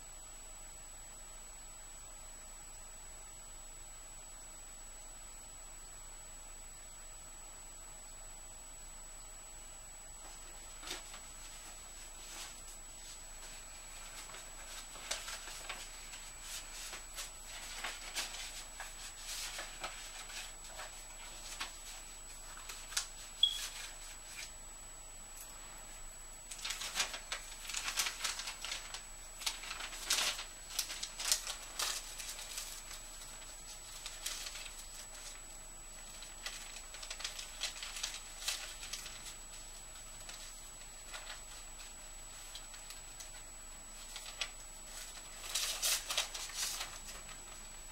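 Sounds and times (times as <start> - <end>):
paper rustling and crinkling: 10.2 - 24.6, 25.4 - 47.9.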